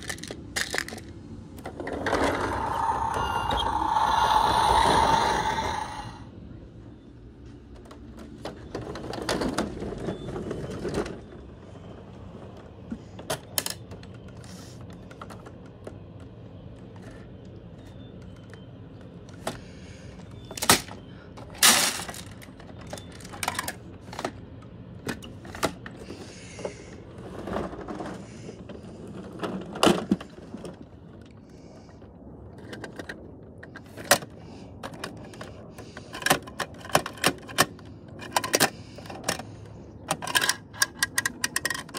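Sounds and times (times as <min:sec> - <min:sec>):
plastic toy clicks and knocks: 0:00.0 - 0:02.5, 0:36.1 - 0:39.4, 0:40.1 - 0:41.9
toy truck rolling on wood: 0:00.0 - 0:06.2, 0:08.0 - 0:12.5, 0:25.6 - 0:31.4, 0:34.9 - 0:41.9.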